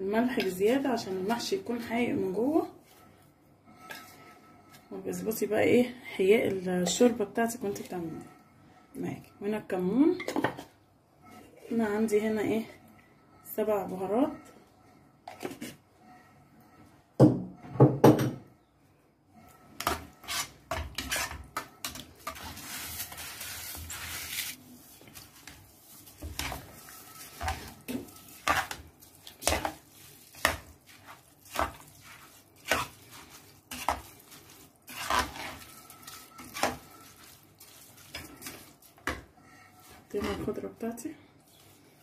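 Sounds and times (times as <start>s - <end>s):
metal spoon scraping a pot: 19.5s - 24.6s, 25.4s - 40.7s.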